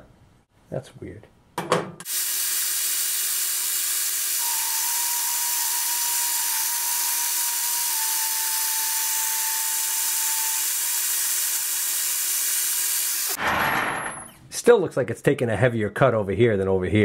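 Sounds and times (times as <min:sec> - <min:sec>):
metal lathe hum and hiss: 0:02.1 - 0:13.4.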